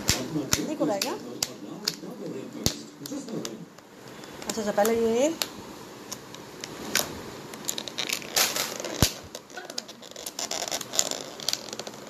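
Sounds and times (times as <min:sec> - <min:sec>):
plastic crinkling: 0:06.6 - 0:12.0.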